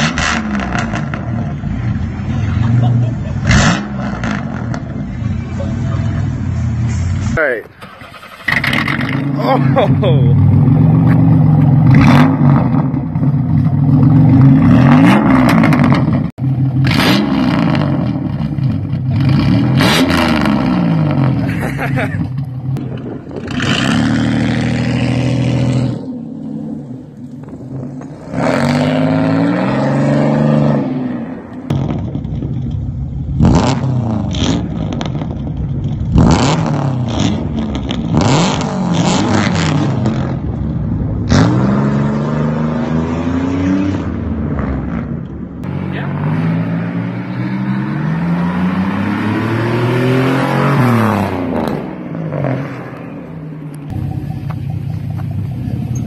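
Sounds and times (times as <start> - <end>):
car engine revving hard: 0.0 - 1.5, 3.4 - 4.8, 8.1 - 22.0, 23.4 - 26.1, 27.7 - 32.0, 33.4 - 35.3, 36.1 - 40.4, 41.2 - 53.1.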